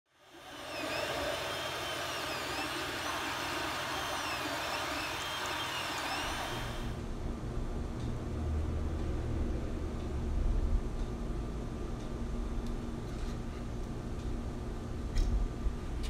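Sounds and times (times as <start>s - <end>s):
cooling fans hissing: 0.1s - 7.0s
stepper motors whining: 0.1s - 7.0s.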